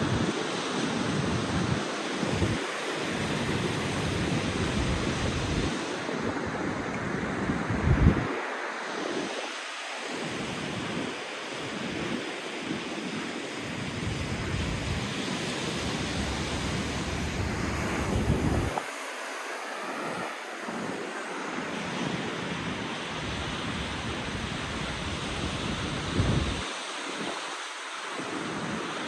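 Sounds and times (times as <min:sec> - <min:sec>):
ocean surf on beach: 0:00.0 - 0:29.0
wind buffeting microphone: 0:01.0 - 0:08.5, 0:13.7 - 0:27.4.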